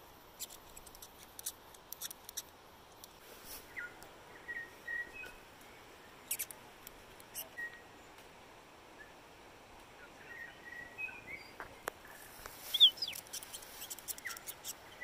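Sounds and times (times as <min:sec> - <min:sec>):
bird chipping: 0:06.2 - 0:06.5, 0:12.7 - 0:15.0
thin bird whistles: 0:12.7 - 0:14.8.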